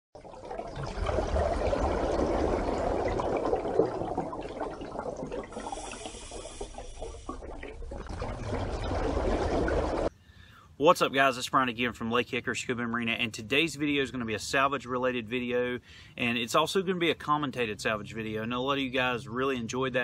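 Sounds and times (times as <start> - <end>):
moving water washing: 0.2 - 10.1.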